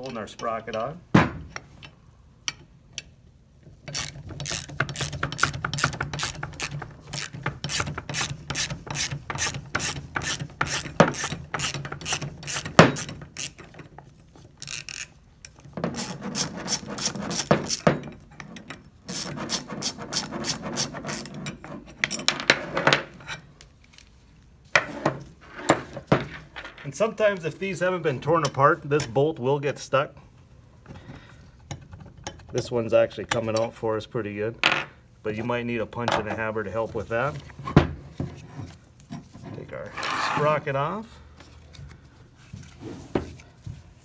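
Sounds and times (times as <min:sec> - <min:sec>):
socket ratchet clicking: 0:03.9 - 0:13.7, 0:14.6 - 0:16.1.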